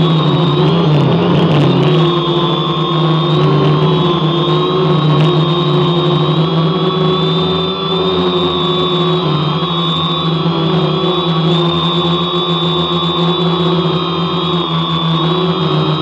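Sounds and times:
drone motors buzzing: 0.0s - 16.0s.

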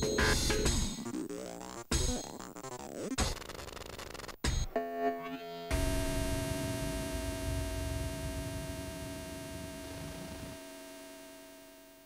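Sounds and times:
electronic buzzing hum: 4.8s - 12.0s.

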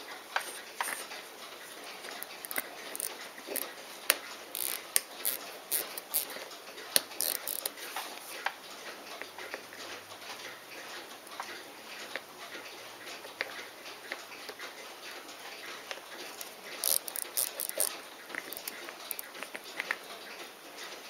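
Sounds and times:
metal watch parts clicking: 2.2s - 3.7s, 4.5s - 6.4s, 7.0s - 7.8s, 16.4s - 19.5s.

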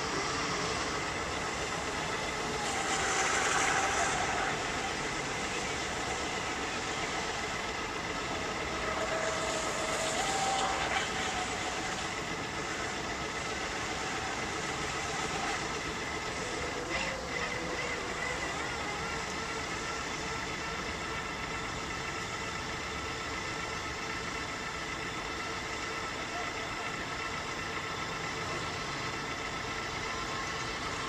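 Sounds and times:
rushing hiss: 0.0s - 16.9s
boat motor whine: 0.0s - 31.0s.

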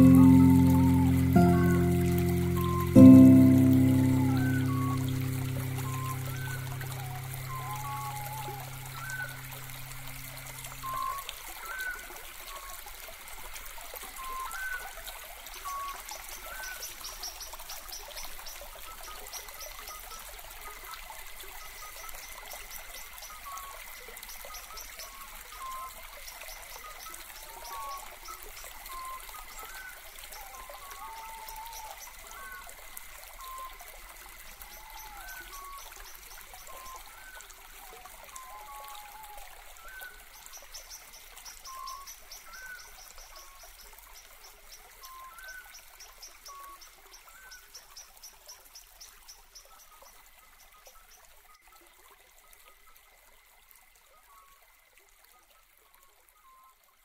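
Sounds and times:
background music chord: 0.0s - 9.0s
running water: 0.0s - 57.0s.

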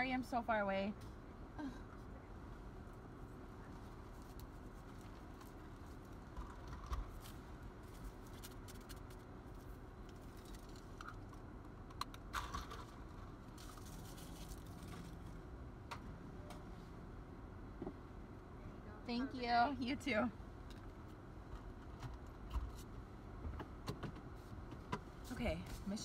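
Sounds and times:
idling car hum: 0.0s - 26.0s
straw wrapper clicks and rustles: 4.0s - 15.2s.

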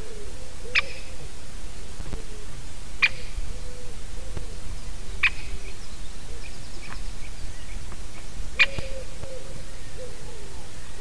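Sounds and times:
woodpecker calls: 0.6s - 1.2s, 3.0s - 4.6s, 5.2s - 11.0s.

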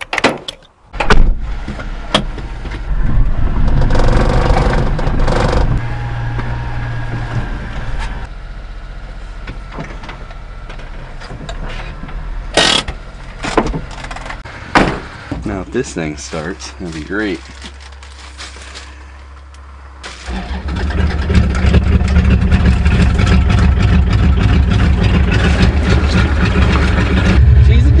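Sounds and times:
small truck engine running: 19.5s - 28.0s.

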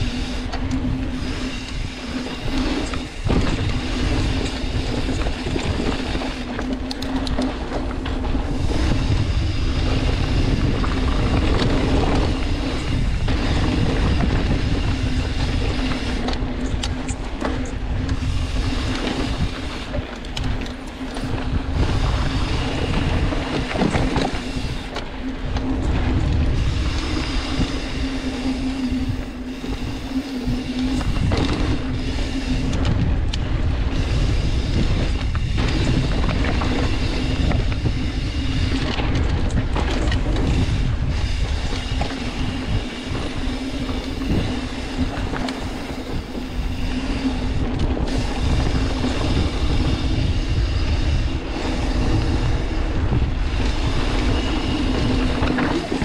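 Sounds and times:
constant low hum: 0.0s - 56.0s
wind buffeting microphone: 0.0s - 56.0s.

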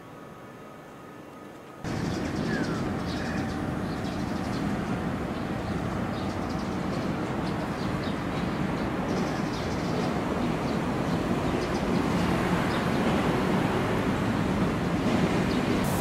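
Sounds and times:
small birds chirping: 1.9s - 13.0s.

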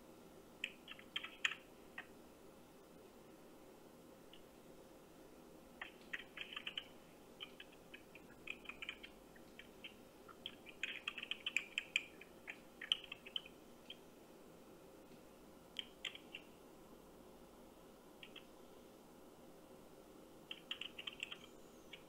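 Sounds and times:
faint line hum: 0.0s - 22.0s
keyboard typing over phone speaker: 0.6s - 2.1s, 5.8s - 14.0s, 15.8s - 16.5s, 18.2s - 18.5s, 20.5s - 22.0s.

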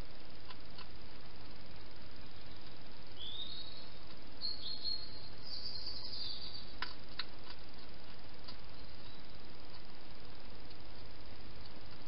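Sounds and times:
microphone hiss: 0.0s - 12.0s
faint high chirps: 2.2s - 6.8s, 8.6s - 9.5s.

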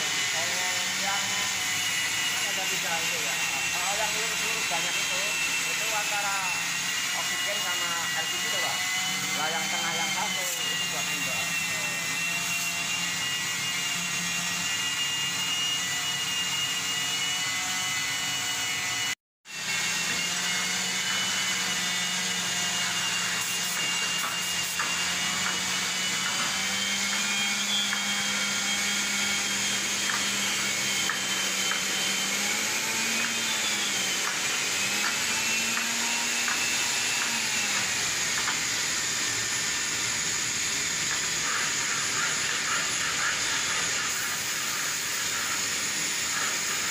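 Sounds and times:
cutting torch hissing: 0.0s - 13.4s, 36.4s - 46.9s.

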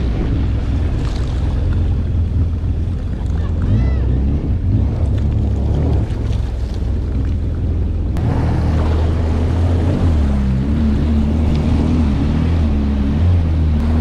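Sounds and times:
jet ski engine running: 0.0s - 14.0s.

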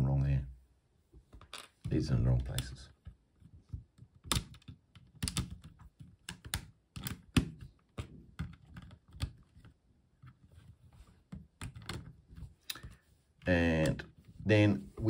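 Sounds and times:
plastic bricks clicking: 4.2s - 9.7s.

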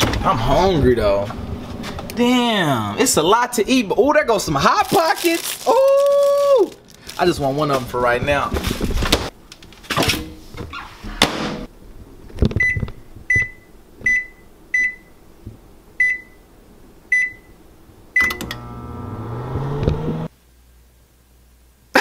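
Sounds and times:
microwave oven humming: 17.2s - 20.3s
microwave keypad beeping: 18.2s - 18.6s.

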